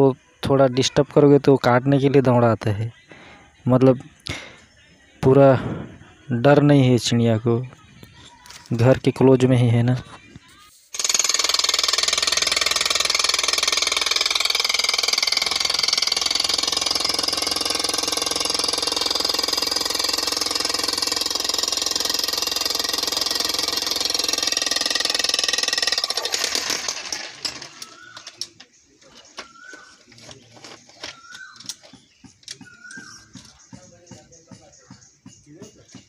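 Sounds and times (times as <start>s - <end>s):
jackhammer breaking earth and stones: 11.0s - 28.5s.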